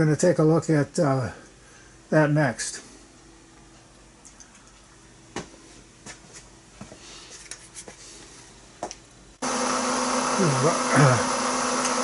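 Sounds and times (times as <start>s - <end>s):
milling machine motor hum and whine: 9.4s - 12.0s.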